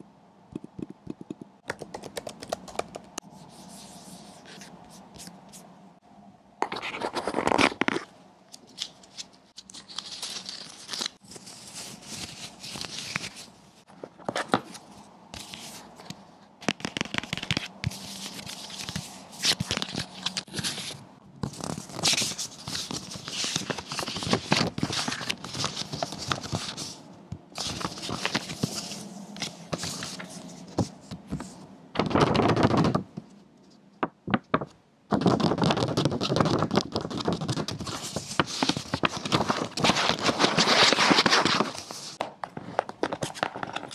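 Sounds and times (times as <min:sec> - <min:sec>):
paper packaging rustling: 0:06.6 - 0:27.0, 0:27.6 - 0:33.0, 0:34.3 - 0:43.9.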